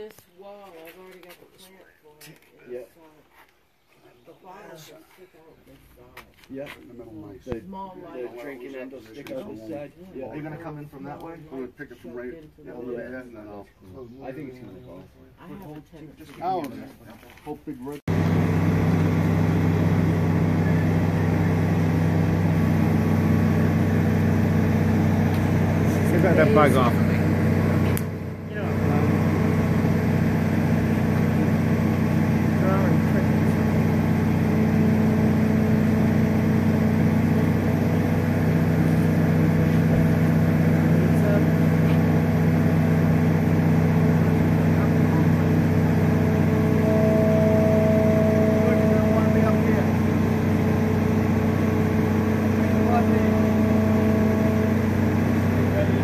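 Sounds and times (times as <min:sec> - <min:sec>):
diesel engine droning: 0:18.1 - 0:56.0
hoist whine: 0:18.1 - 0:56.0.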